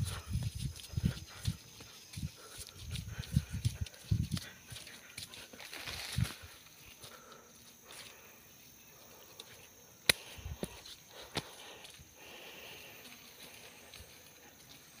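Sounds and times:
footsteps on leaves: 0.0 - 7.2
sharp twig cracks: 10.0 - 10.7.

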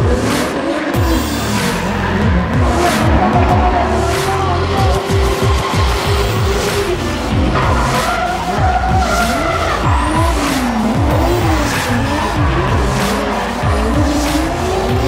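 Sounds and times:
car engines revving: 0.0 - 15.0
tires squealing: 0.0 - 15.0.

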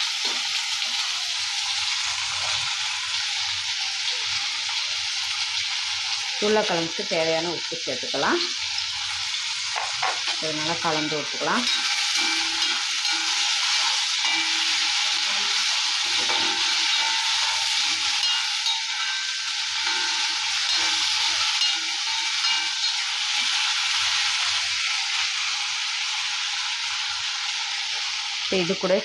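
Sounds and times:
potato slices sizzling in oil: 0.0 - 29.0
spatula scraping pan: 9.8 - 24.8.

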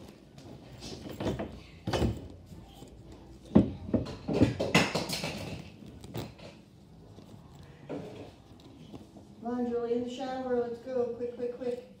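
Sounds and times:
objects knocking and thudding: 0.4 - 9.1.

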